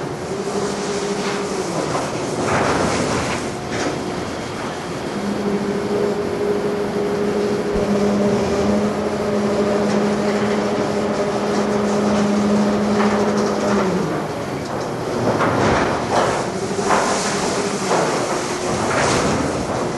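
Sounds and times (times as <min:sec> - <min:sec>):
constant noisy rush: 0:00.0 - 0:19.9
truck engine humming: 0:03.5 - 0:15.4.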